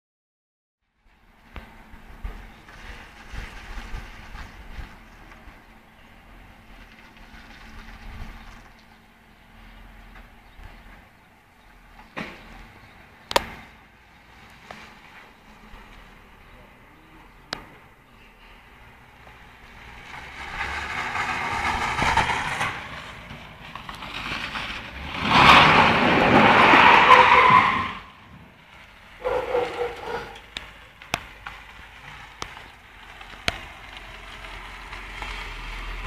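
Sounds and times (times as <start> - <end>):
car engine running hard: 1.1 - 36.0
tyres squealing: 23.8 - 28.2, 29.2 - 32.2.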